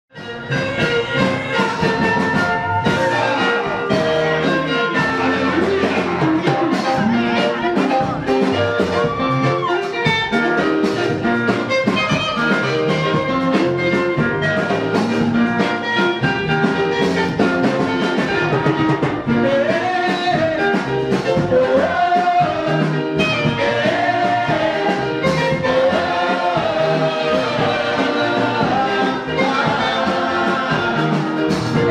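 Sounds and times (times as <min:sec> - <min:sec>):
band accompaniment with steady beat: 0:00.1 - 0:31.9
choir and lead voice singing: 0:00.5 - 0:09.6, 0:19.2 - 0:31.9.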